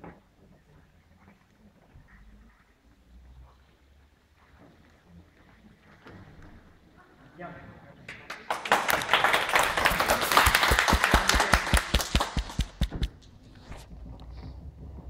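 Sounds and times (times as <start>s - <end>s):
audience applauding: 8.1s - 13.2s
person clapping close to microphone: 8.1s - 13.2s.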